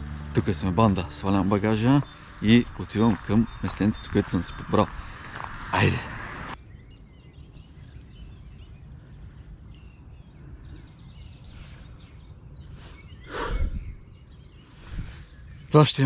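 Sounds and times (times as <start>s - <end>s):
footsteps on ground: 0.0s - 6.6s
low rumble: 0.0s - 6.6s
birds chirping: 0.0s - 16.0s.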